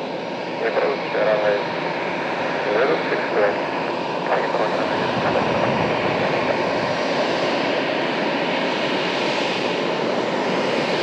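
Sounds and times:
jet engines at low thrust: 0.0 - 11.0.

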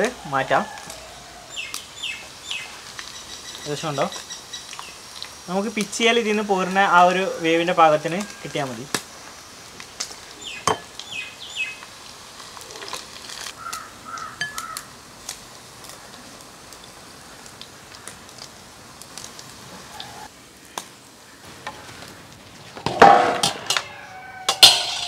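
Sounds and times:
oil sizzling: 0.0 - 25.0
bird chirps: 10.4 - 11.8
tongs clinking against pan: 24.5 - 25.0.

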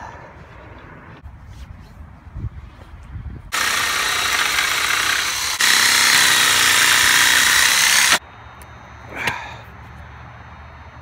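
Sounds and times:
power saw cutting wood: 3.5 - 8.2.

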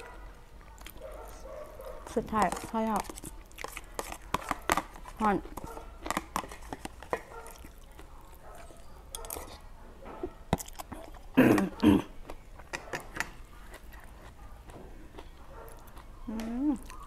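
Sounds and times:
chewing and smacking: 0.0 - 17.0
person clearing throat: 11.4 - 12.2.

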